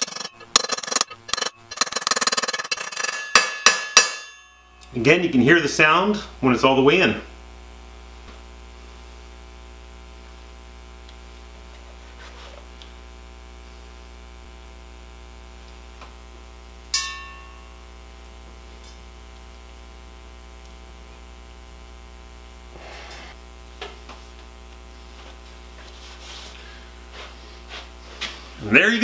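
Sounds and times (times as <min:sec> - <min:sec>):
rag rubbing on metal hub: 0:00.0 - 0:04.5
metallic clink: 0:00.0 - 0:04.9, 0:17.0 - 0:17.8
electrical mains hum: 0:00.0 - 0:29.0.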